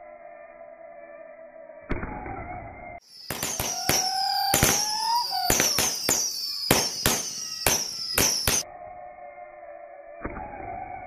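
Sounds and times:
slowed low whistle tones: 0.0 - 11.0
firework whistles sliding down: 3.0 - 8.6
firework bangs: 3.1 - 8.6.

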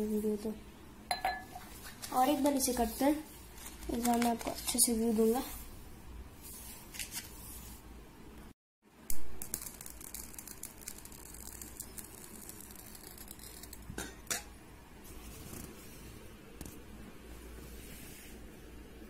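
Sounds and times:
glass and steel plate clinking: 1.1 - 1.6.

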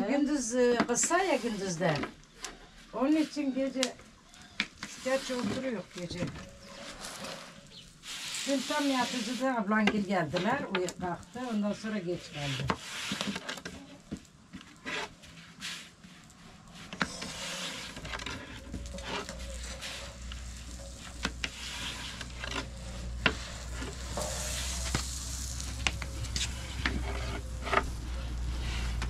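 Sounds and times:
bread sizzling over fire: 0.0 - 29.0
wood fire crackles: 0.0 - 29.0.

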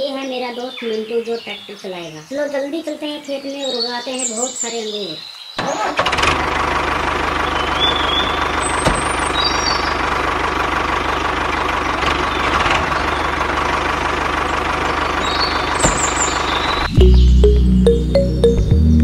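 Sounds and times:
tractor engine idling: 5.8 - 17.6.

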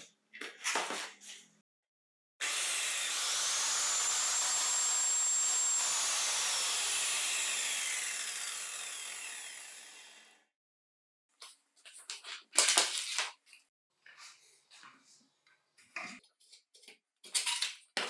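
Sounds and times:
circular saw motor whine: 2.7 - 9.8.

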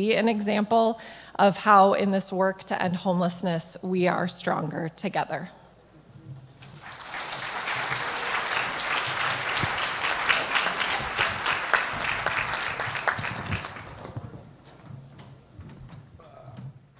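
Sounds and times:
audience applauding: 6.6 - 14.5.

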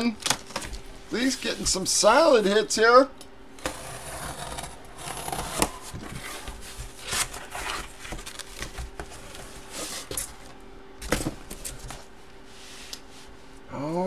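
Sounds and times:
cardboard packaging rustling: 5.1 - 12.1.

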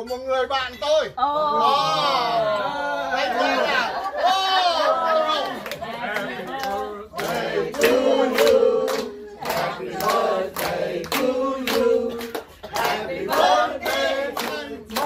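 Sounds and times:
hands clapping to the beat: 5.4 - 15.0
group of people singing: 5.8 - 15.0.

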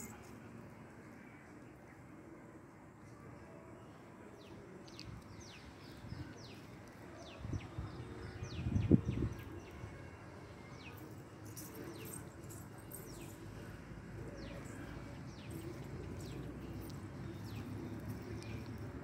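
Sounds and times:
small birds chirping: 10.8 - 19.0.

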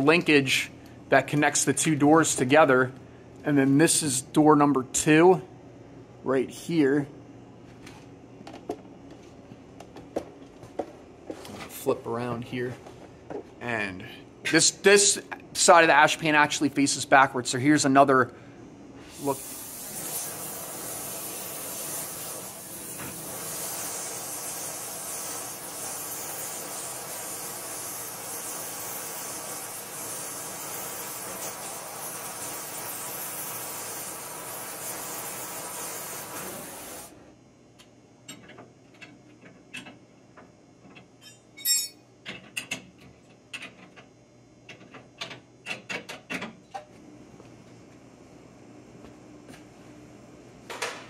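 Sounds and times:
cutting torch hissing: 19.0 - 37.2.

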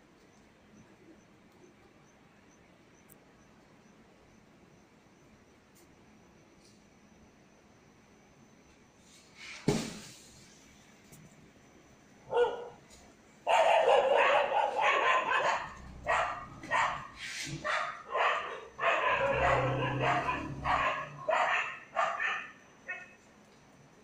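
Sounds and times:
dogs barking: 12.3 - 12.8, 13.4 - 23.2.

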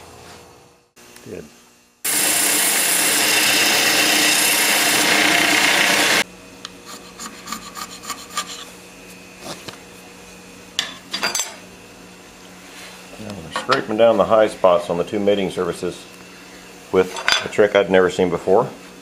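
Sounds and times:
belt grinder grinding steel: 2.1 - 6.2.

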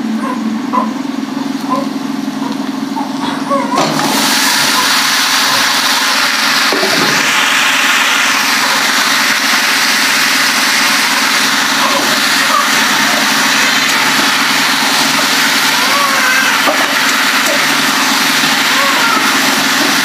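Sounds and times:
vegetables sizzling in a pan: 3.8 - 20.0.

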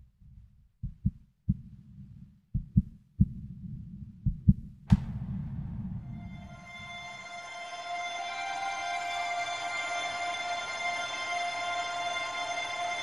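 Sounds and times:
heartbeat thumps: 0.2 - 6.5
low rumble: 1.5 - 8.1
music: 6.0 - 13.0.

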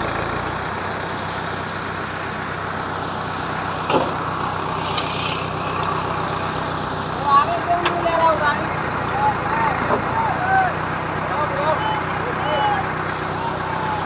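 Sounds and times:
heavy diesel engines running: 0.0 - 14.0
short hiss: 13.1 - 13.6.

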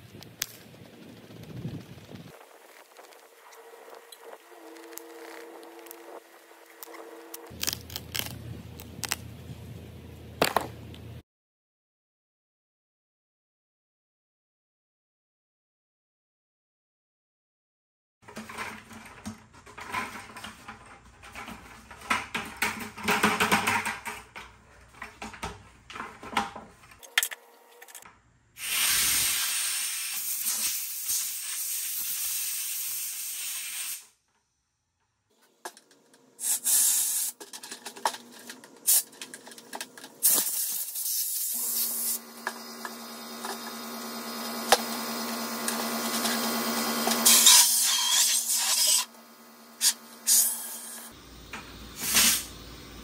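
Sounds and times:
plastic buckets knocking and rubbing: 18.2 - 27.0
compressed air hissing: 28.6 - 34.2, 36.4 - 37.4, 38.8 - 39.2, 40.2 - 42.2, 47.2 - 49.1, 49.8 - 53.0.

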